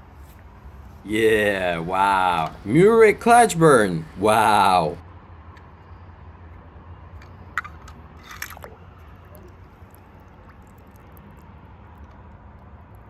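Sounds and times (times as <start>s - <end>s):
steady low hum: 0.0s - 6.5s
toy car splashing into water: 8.2s - 11.4s
water plop: 8.5s - 11.5s.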